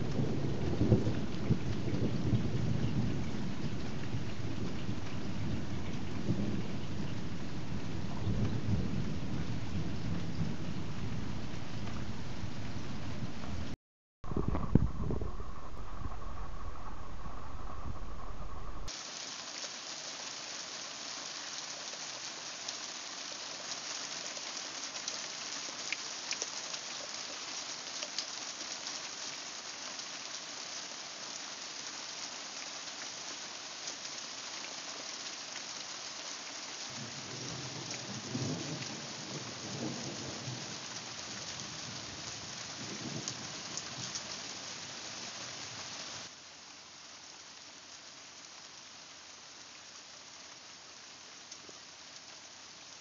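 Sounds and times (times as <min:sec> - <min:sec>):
rolling thunder rumble: 0:00.0 - 0:18.9
heavy rain hissing and pattering: 0:00.0 - 0:53.0.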